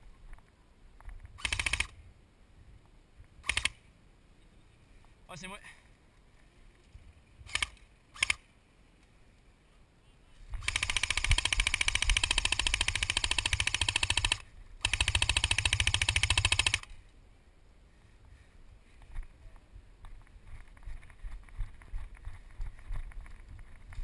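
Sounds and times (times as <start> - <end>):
sharp clicks: 0.3 - 2.0, 3.4 - 3.8, 7.5 - 8.4, 10.5 - 17.2
airsoft gun full-auto bursts: 1.4 - 2.0, 3.4 - 3.8, 7.5 - 8.4, 10.6 - 17.0.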